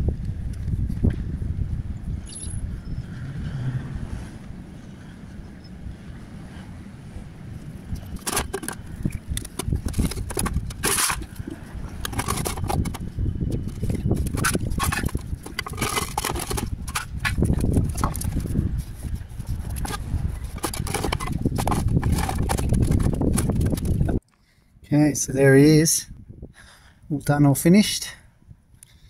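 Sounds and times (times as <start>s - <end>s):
clay roof tiles clinking: 8.2s - 13.0s, 13.6s - 18.4s, 19.8s - 24.2s.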